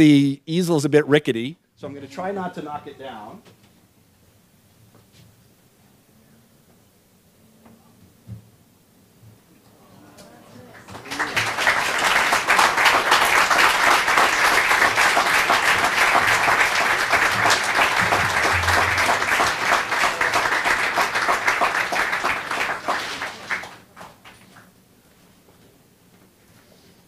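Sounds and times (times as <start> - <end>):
audience applauding: 10.6 - 24.7.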